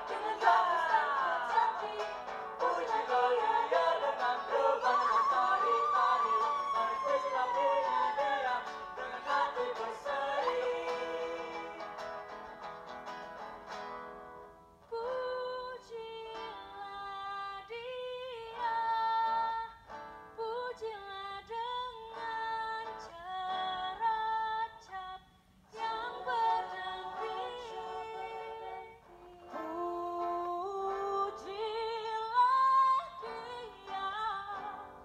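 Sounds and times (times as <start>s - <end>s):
woman singing lead: 0.0s - 12.0s, 14.8s - 19.8s, 20.4s - 35.0s
vocal group singing: 0.0s - 12.4s, 25.7s - 30.4s
acoustic guitar: 0.0s - 35.0s.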